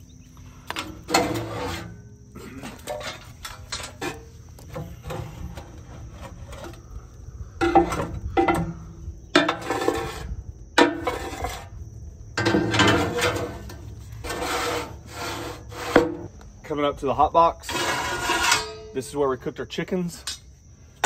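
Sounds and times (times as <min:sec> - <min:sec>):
metallic clanks: 0:00.7 - 0:06.8
ash rake scraping steel floor: 0:00.8 - 0:11.8, 0:12.4 - 0:16.3, 0:17.6 - 0:19.0.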